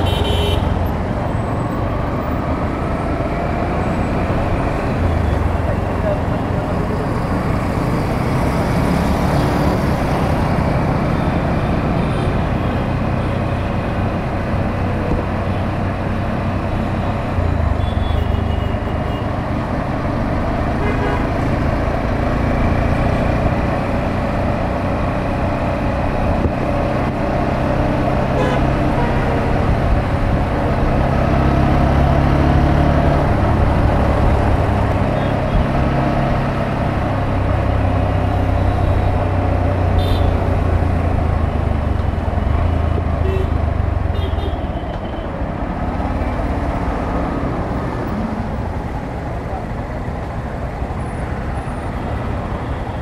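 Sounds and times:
vehicle horn toots: 0.0 - 0.7, 28.4 - 29.2
hum of traffic: 0.0 - 53.0
road and wind noise: 0.0 - 53.0.

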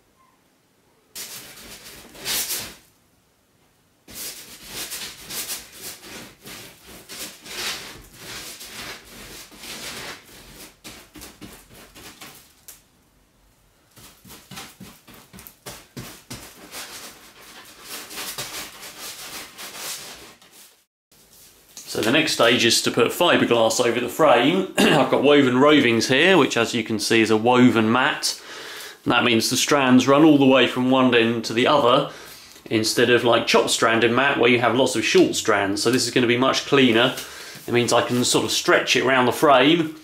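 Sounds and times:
paintbrush scrubbing glue: 4.1 - 12.4.

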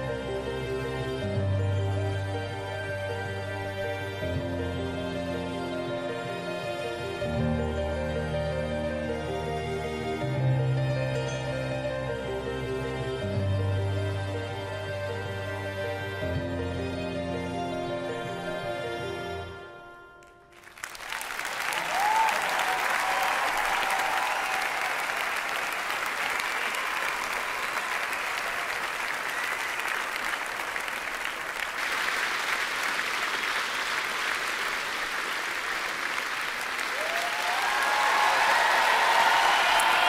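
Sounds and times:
music: 0.0 - 25.7, 35.2 - 40.0
audience applause: 20.5 - 40.0
short cheers: 21.5 - 25.8, 36.9 - 40.0.

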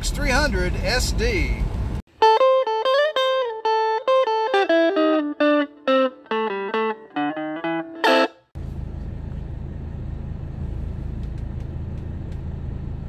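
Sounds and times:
electric guitar music: 2.1 - 8.5.

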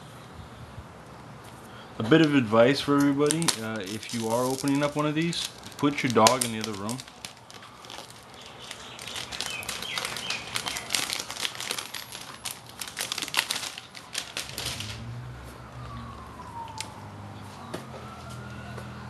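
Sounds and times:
plastic sheet crinkling: 3.0 - 15.1.

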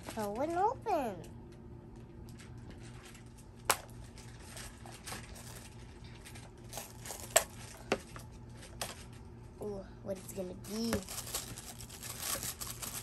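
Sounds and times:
plastic wrapping rustling: 2.2 - 9.2, 10.2 - 13.0.

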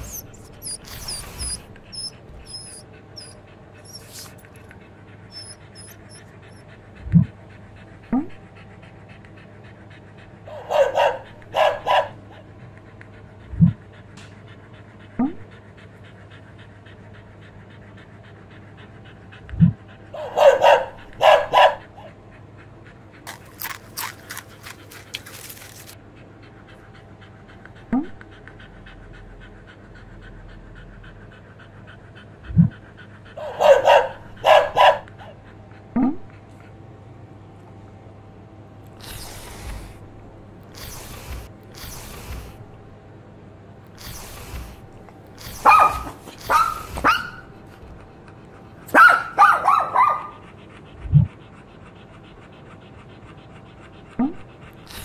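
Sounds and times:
dog panting: 0.0 - 43.1, 43.7 - 55.0.

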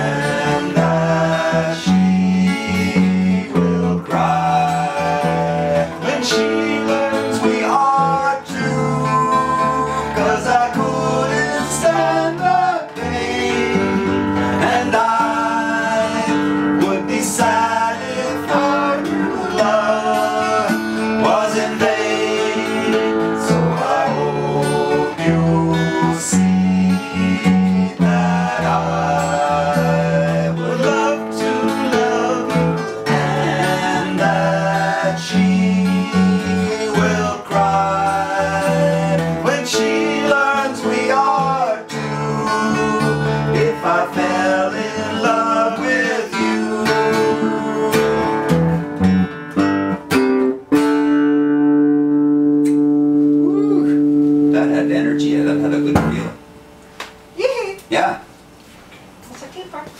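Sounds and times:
electric bass: 0.0 - 6.1, 19.1 - 39.6, 47.2 - 56.6
voices singing together: 0.0 - 49.0
acoustic guitar: 0.0 - 59.9.

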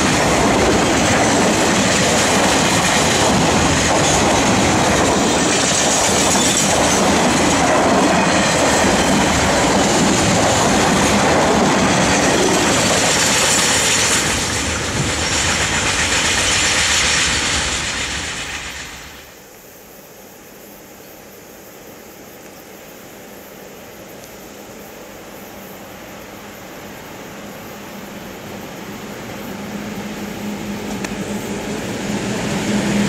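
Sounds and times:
train wagons rolling on rails: 0.0 - 19.4, 27.5 - 33.0.

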